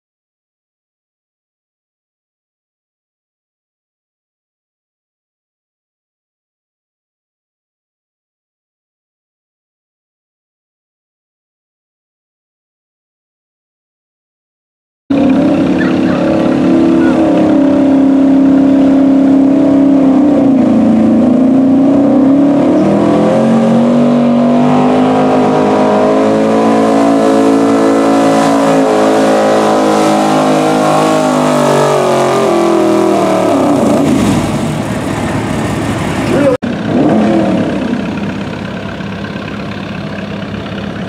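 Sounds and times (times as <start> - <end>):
truck engine at full throttle: 15.1 - 41.0.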